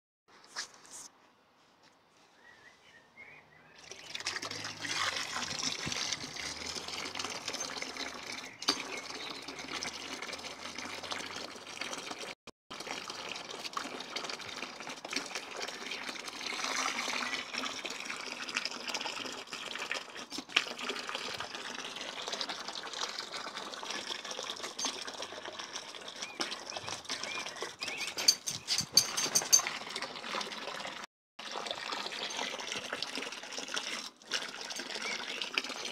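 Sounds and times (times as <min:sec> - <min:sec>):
hose spray splashing into water: 0:03.8 - 0:27.8.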